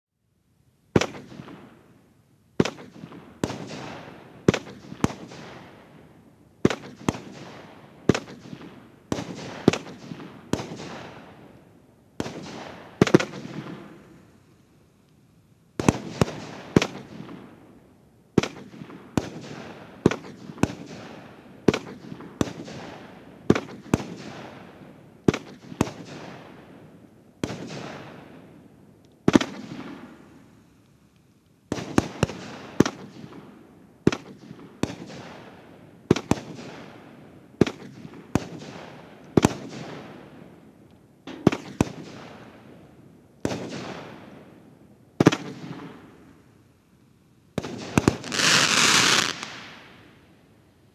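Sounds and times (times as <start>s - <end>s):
firework bangs with hiss: 1.0s - 1.7s, 2.6s - 5.7s, 6.6s - 11.3s, 12.2s - 14.0s, 15.8s - 17.4s, 18.4s - 26.4s, 27.4s - 28.2s, 29.2s - 30.6s, 31.7s - 33.4s, 41.3s - 42.6s, 45.2s - 45.9s, 47.6s - 50.0s.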